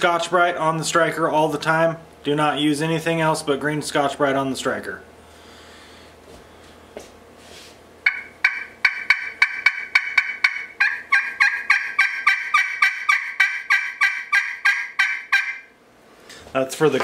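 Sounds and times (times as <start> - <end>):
turkey call yelps: 8.1 - 15.8.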